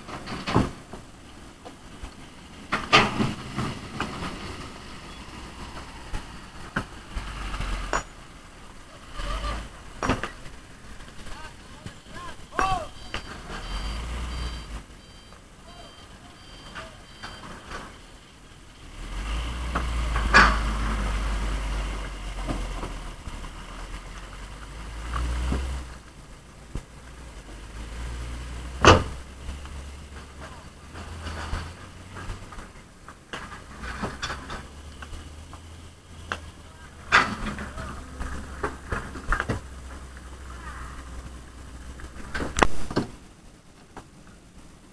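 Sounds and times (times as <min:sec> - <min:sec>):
diesel truck engine rumbling: 0:00.0 - 0:43.7
high beeps: 0:11.9 - 0:18.3.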